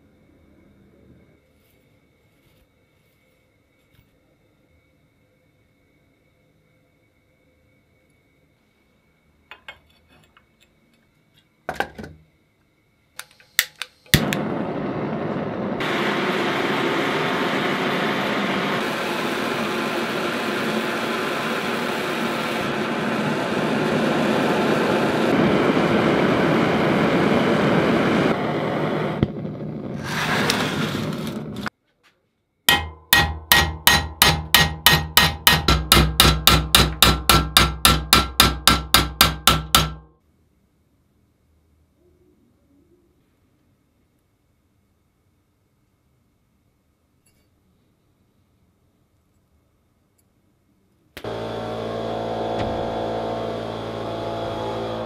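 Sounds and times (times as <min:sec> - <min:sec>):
blowtorch hissing: 0:14.1 - 0:31.7, 0:51.2 - 0:55.0
hammer striking metal: 0:32.7 - 0:40.1.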